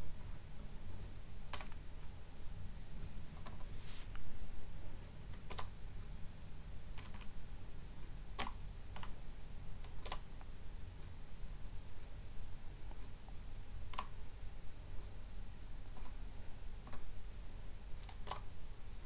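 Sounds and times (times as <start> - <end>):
steady low hum: 0.0 - 19.0
keyboard keystrokes clicking: 5.4 - 5.7, 9.8 - 10.3.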